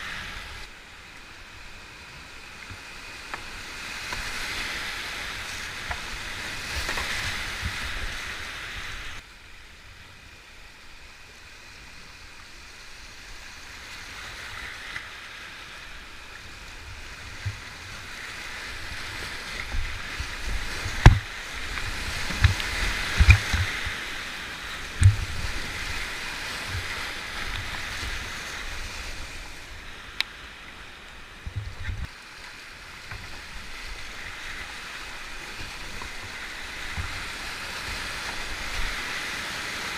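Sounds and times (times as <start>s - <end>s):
whitewater rushing over rocks: 15.8s - 39.9s.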